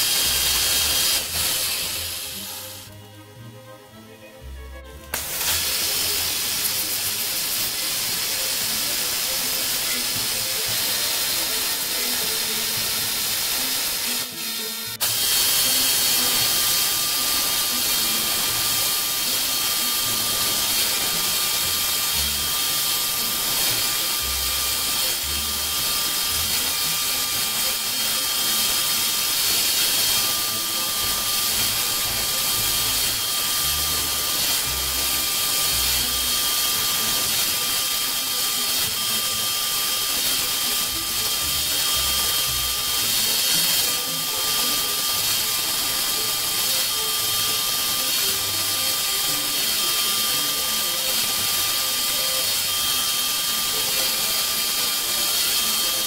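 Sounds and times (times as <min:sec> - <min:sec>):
air nozzle hissing: 0:00.0 - 0:02.9, 0:05.1 - 0:56.0
milling machine cutting whine: 0:00.0 - 0:56.0.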